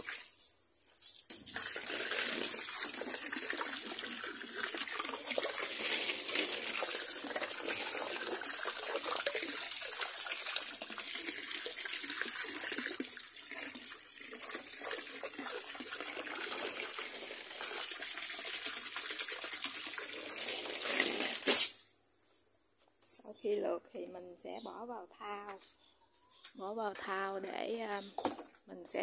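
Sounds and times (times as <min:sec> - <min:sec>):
hose water splashing: 0:00.0 - 0:21.9.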